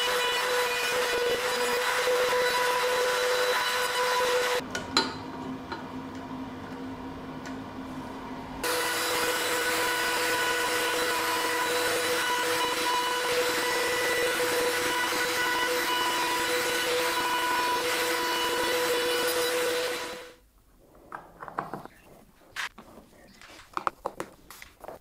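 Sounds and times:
table saw cutting board: 0.0 - 4.6, 8.6 - 20.4
dust extraction: 0.0 - 4.7, 8.6 - 20.4.

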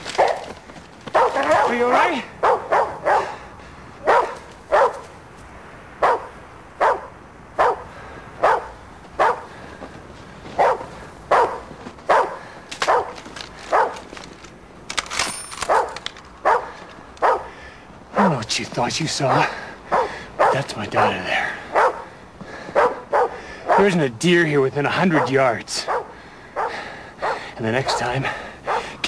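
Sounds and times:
dog barking: 1.1 - 1.8, 2.4 - 3.4, 4.0 - 5.0, 6.0 - 9.5, 10.6 - 14.0, 15.7 - 17.5, 19.9 - 22.1, 22.8 - 24.0, 25.1 - 29.0.

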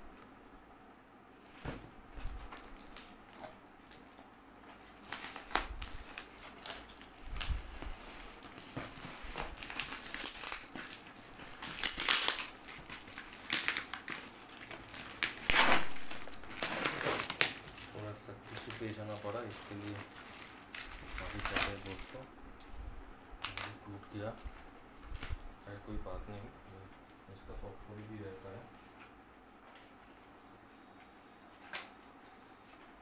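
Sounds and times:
cardboard box and plastic crinkling: 1.6 - 22.2, 23.4 - 26.5.

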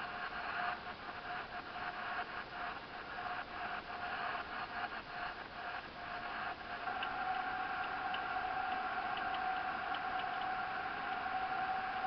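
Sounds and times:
car driving drone from inside: 0.0 - 12.0
thin steady tone: 0.0 - 12.0
faint light ticks: 6.9 - 11.4.

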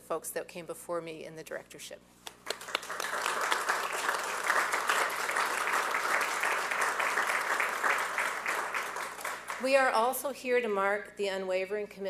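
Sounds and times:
audience applauding: 2.4 - 9.7.

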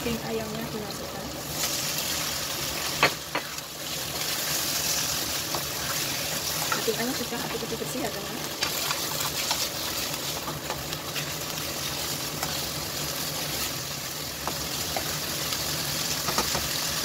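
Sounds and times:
chicken sizzling in hot oil: 0.0 - 17.0
spatula tapping and scraping pan: 2.9 - 3.6, 14.4 - 15.2, 16.2 - 16.8.

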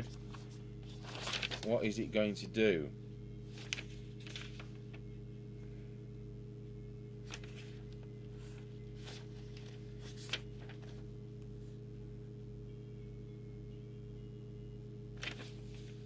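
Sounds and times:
paper crackle: 0.0 - 2.0, 3.4 - 5.0, 7.2 - 11.5, 15.2 - 16.0
paper rustling: 0.0 - 2.0, 3.4 - 5.0, 7.2 - 11.2, 15.2 - 16.0
steady low hum: 0.0 - 16.0.

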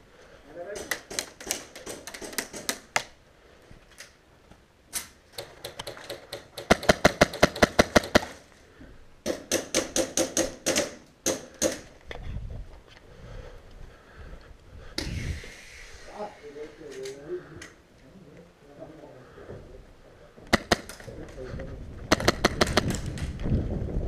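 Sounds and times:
airsoft rifle rapid shots: 5.4 - 8.4, 20.5 - 21.0, 22.1 - 23.0.

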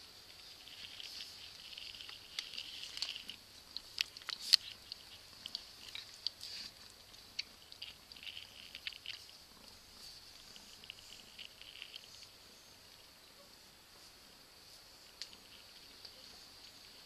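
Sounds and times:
faint high hiss: 0.0 - 17.0
kittens' claws on wooden floor: 0.3 - 12.4.

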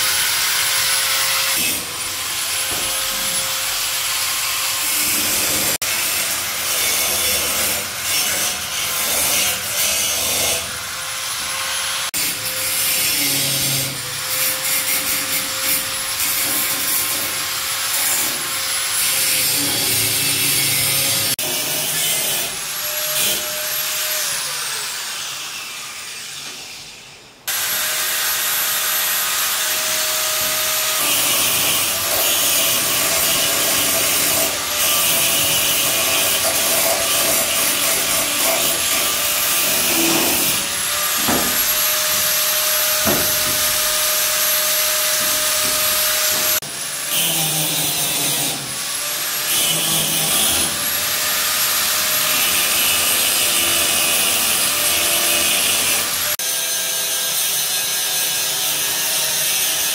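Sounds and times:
angle grinder running and grinding: 27.5 - 59.9
knocks: 43.0 - 43.8.

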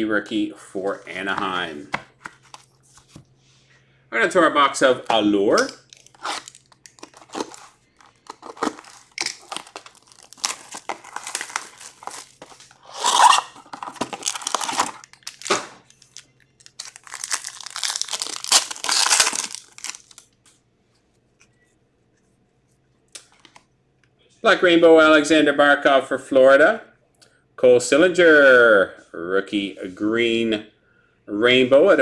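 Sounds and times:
foil pack ripping and crinkling: 5.6 - 20.3
cardboard box being opened: 6.1 - 15.4.

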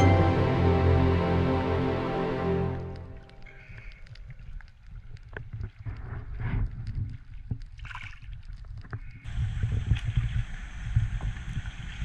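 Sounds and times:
wind buffeting microphone: 9.2 - 12.0.

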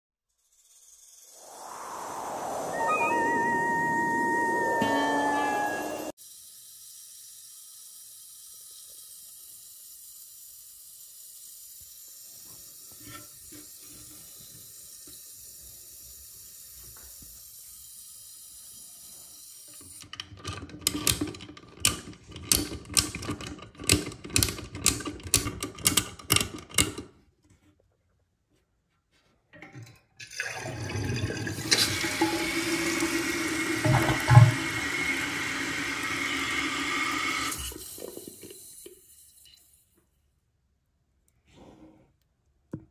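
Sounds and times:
faint water hiss: 0.9 - 5.3, 6.2 - 20.0
toilet tank refilling: 29.6 - 39.8.

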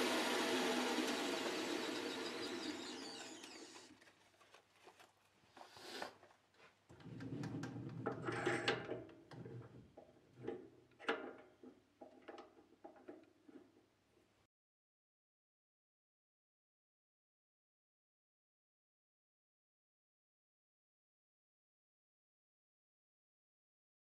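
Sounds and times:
lathe spindle coasting down: 0.0 - 3.9.

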